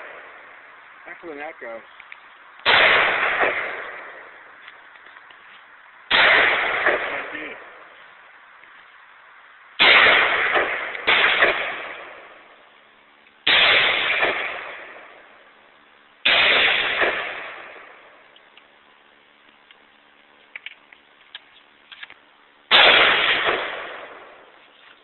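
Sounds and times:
rifle shots with echo: 0.0s - 0.5s, 2.6s - 4.5s, 6.1s - 8.0s, 9.8s - 12.6s, 13.4s - 15.4s, 16.2s - 18.2s, 22.7s - 24.6s.

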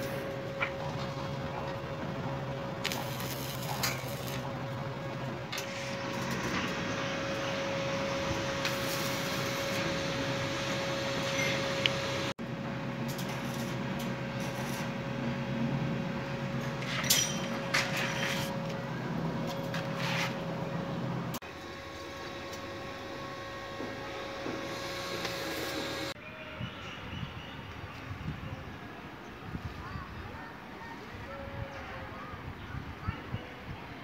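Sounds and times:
steady machine hum: 0.0s - 17.9s, 20.4s - 26.2s.

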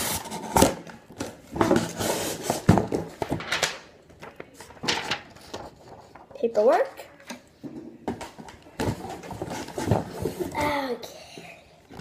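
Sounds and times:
cardboard box and paper rustling: 8.2s - 10.8s.

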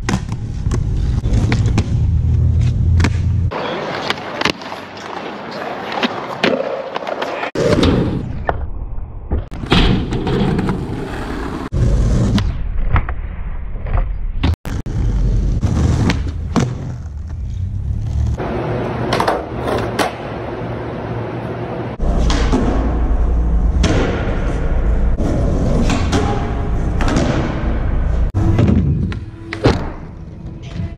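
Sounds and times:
skateboard wheels rolling: 10.0s - 12.4s.

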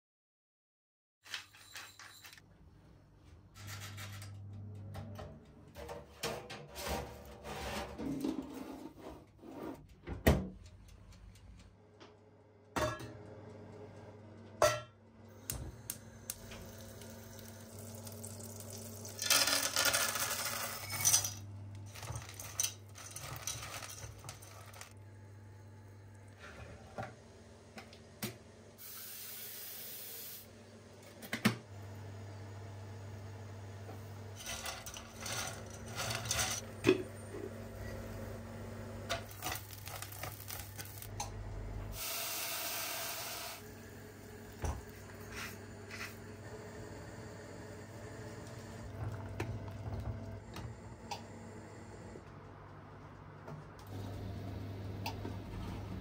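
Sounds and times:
metal pots and lids clinking: 14.6s - 14.9s, 18.0s - 24.9s, 34.4s - 37.1s
tap water running into kettle: 16.3s - 19.8s
pepper grinder turning: 18.0s - 24.9s, 34.4s - 36.6s.

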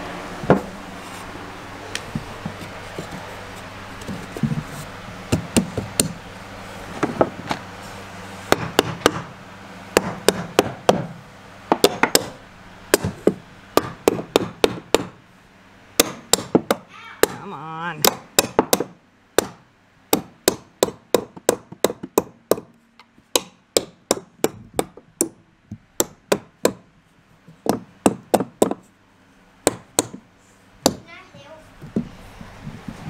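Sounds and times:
hammer knocking on wood: 8.5s - 9.3s, 10.0s - 11.1s, 11.7s - 12.3s, 12.9s - 15.2s, 16.0s - 17.4s, 18.0s - 22.7s, 23.3s - 26.8s, 27.6s - 28.8s, 29.6s - 30.2s, 30.8s - 31.1s.

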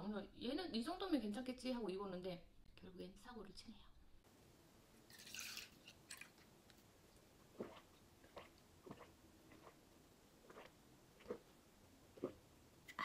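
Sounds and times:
quiet gulps: 7.4s - 13.0s.

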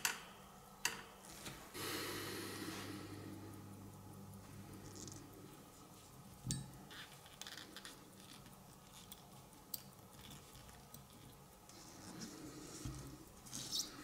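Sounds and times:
small metal parts clicking: 4.8s - 5.3s, 6.4s - 14.0s.

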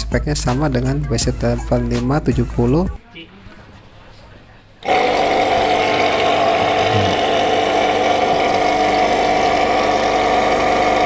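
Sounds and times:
pressure washer motor running: 4.8s - 11.0s.

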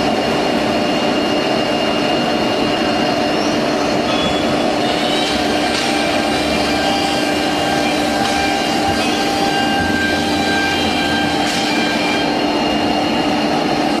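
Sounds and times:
router spindle hum: 4.6s - 13.2s
router bit cutting wood: 4.7s - 12.3s.

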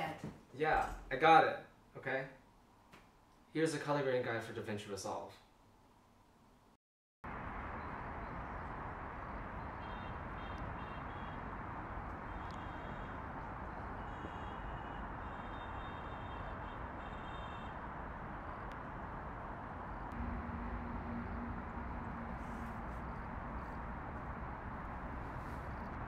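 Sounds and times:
distant traffic hiss: 7.3s - 26.0s.

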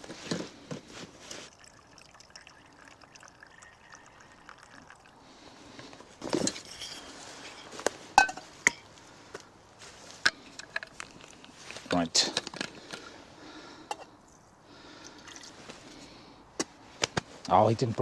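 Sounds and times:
liquid trickling onto stove: 1.4s - 5.2s
metal pot and lids clinking: 8.2s - 8.8s.

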